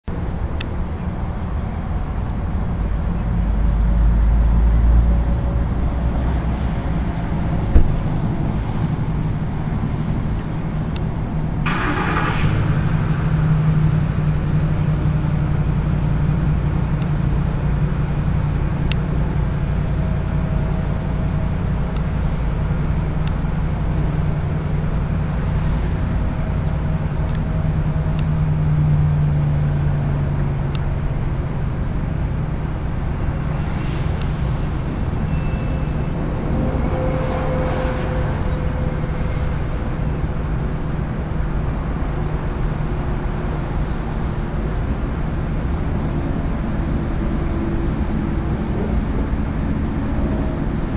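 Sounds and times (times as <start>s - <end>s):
road traffic rumble: 0.0s - 50.9s
short hiss: 11.7s - 13.9s.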